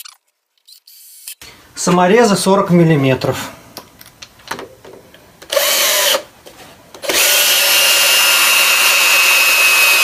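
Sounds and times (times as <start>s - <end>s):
drill driving screws into wood: 5.5s - 6.3s, 7.0s - 10.0s.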